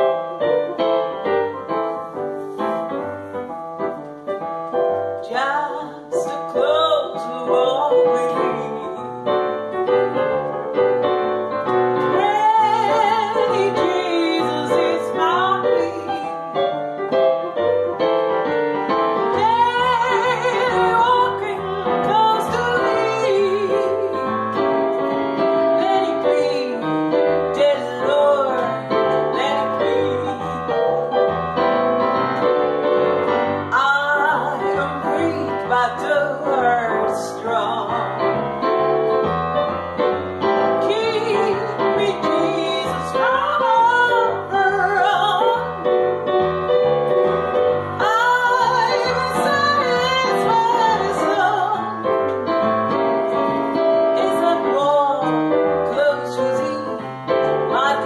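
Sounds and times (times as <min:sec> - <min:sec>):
piano accompaniment: 0:00.0 - 0:58.0
woman singing: 0:05.2 - 0:09.9, 0:12.0 - 0:16.7, 0:19.2 - 0:24.8, 0:25.4 - 0:31.1, 0:33.6 - 0:38.4, 0:40.6 - 0:46.2, 0:47.7 - 0:52.3, 0:53.8 - 0:58.0.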